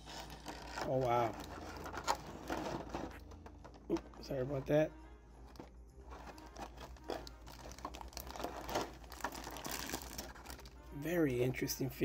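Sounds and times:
plastic bag crinkling: 0.0 - 4.2, 6.1 - 10.8.

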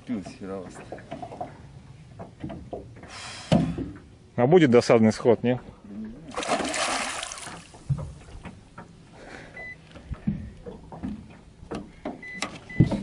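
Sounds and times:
fish splashing at surface: 6.3 - 7.8.

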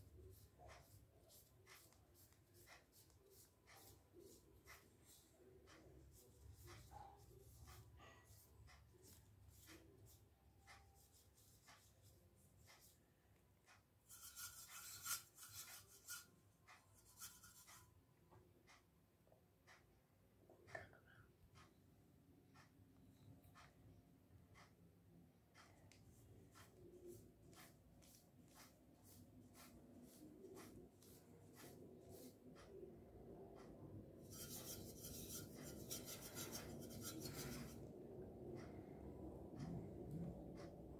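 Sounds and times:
paintbrush rubbing: 0.0 - 13.0, 14.1 - 17.9, 26.5 - 32.8, 33.6 - 37.9.

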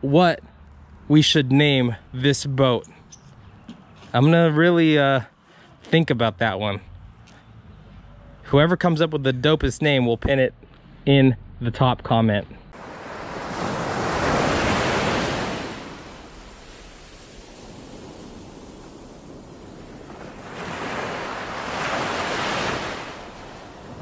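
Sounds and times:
hiss of water: 12.8 - 20.4
ocean waves breaking on beach: 12.8 - 24.0.

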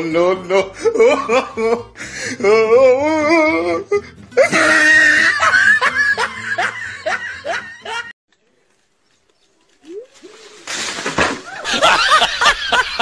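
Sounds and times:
person laughing loudly: 0.2 - 8.1, 11.5 - 13.0.

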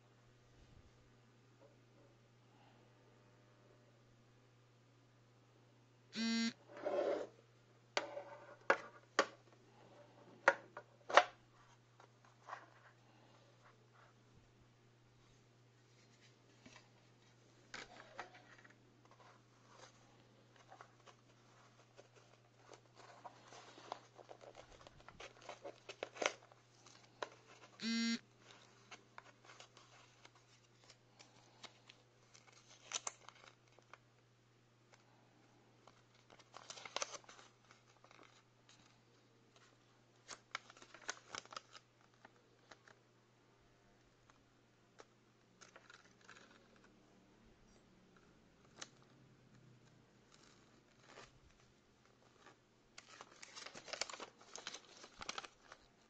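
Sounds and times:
paper rustling: 15.9 - 27.8, 28.4 - 34.0, 35.8 - 43.0, 50.2 - 56.0.

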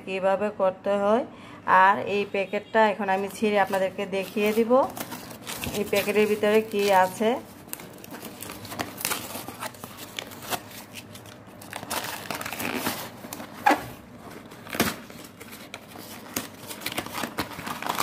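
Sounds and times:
packaging crinkling and rustling: 3.1 - 18.0
sharp plastic crackles: 3.2 - 18.0
packaging tearing: 3.5 - 18.0.

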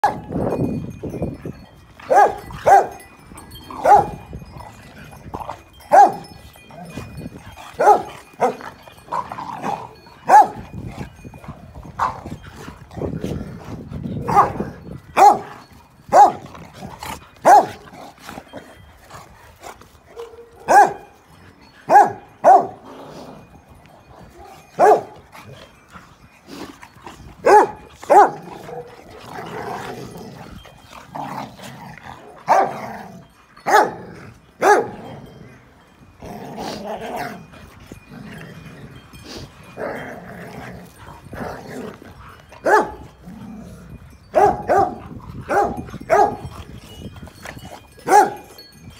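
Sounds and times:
dogs barking: 0.0 - 0.3, 2.0 - 3.0, 3.8 - 4.3, 5.8 - 6.4, 7.7 - 10.7, 14.2 - 16.4, 17.4 - 17.8, 20.1 - 21.2, 21.8 - 22.8, 24.3 - 25.2, 27.4 - 29.0, 32.2 - 32.9, 33.6 - 35.0, 42.4 - 43.1, 44.3 - 46.5, 48.0 - 48.6
dogs growling: 0.2 - 48.8.

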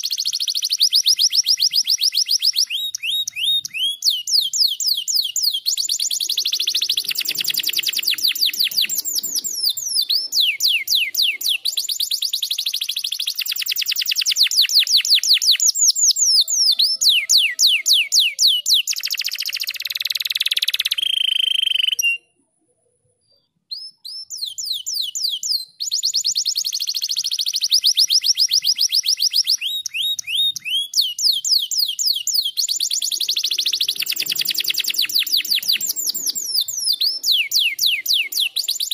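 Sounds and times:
canary short whistle: 0.2 - 22.3, 23.7 - 38.9
canary trilling: 1.6 - 22.2, 28.8 - 38.9.

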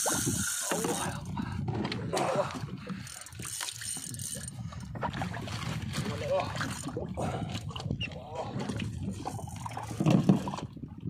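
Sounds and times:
fishing reel ratcheting clicks: 0.0 - 1.3, 3.0 - 4.6
water sloshing against boat: 0.0 - 11.0.

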